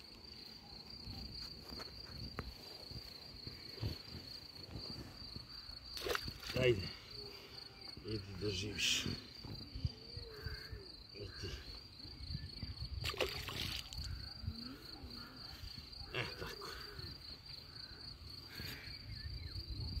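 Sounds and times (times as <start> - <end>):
high insect trill: 0.0 - 20.0
wind rumbling on microphone: 9.0 - 10.8, 11.9 - 14.9, 19.1 - 20.0.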